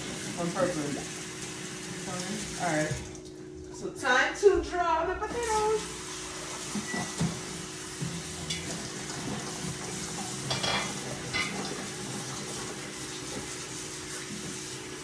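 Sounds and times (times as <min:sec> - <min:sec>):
metal utensils clinking: 0:10.5 - 0:11.6.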